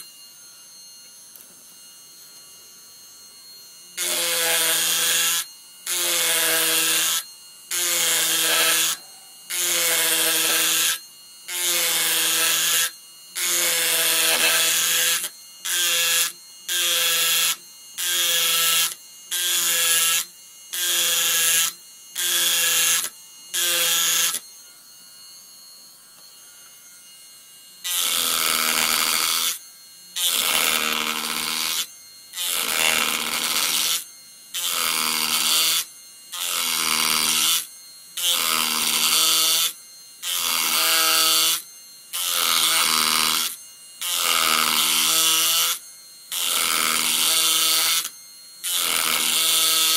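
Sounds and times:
carving machine buzzing: 0.0 - 49.9.

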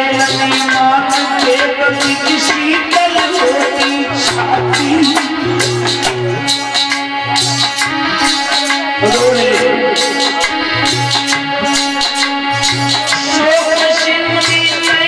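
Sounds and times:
man singing: 0.0 - 6.4, 9.0 - 10.5, 13.2 - 15.0
drum beat: 0.0 - 15.0
harmonium drone: 0.0 - 15.0
rattling hand percussion: 0.0 - 15.0.

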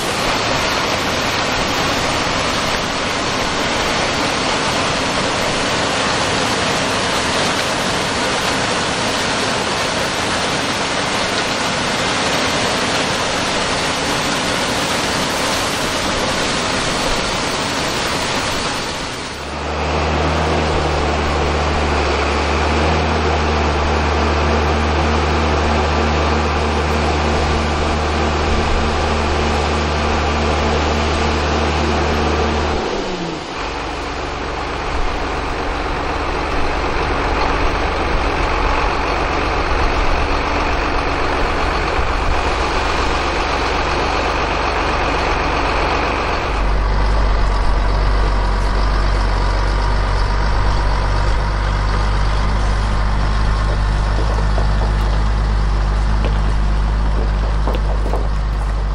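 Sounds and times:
diesel engine running: 0.0 - 58.9.

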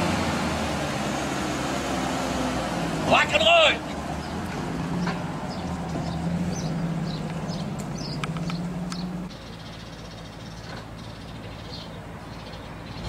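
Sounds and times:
car engine running: 2.4 - 9.4
small birds chirping: 3.1 - 13.0.

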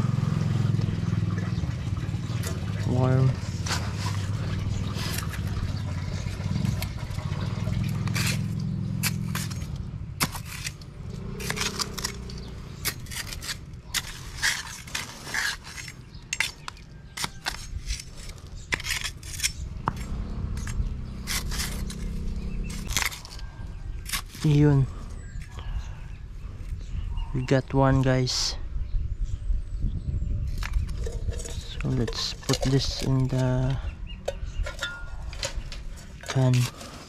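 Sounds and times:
low steady rumble: 0.0 - 36.8
machete chopping dry soil: 7.9 - 23.4, 24.0 - 24.8.

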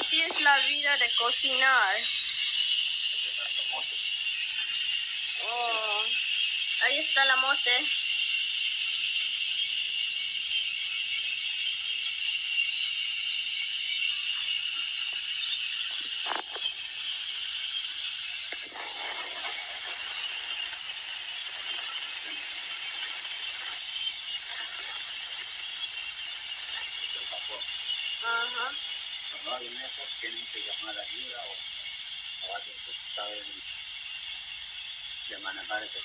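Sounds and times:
pot of broth boiling: 14.1 - 29.4.

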